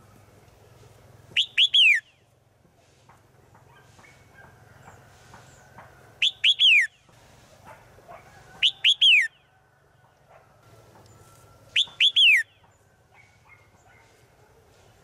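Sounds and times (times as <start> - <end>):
bird calling: 0.0 - 2.3, 3.7 - 7.1, 8.6 - 9.5, 11.0 - 14.2.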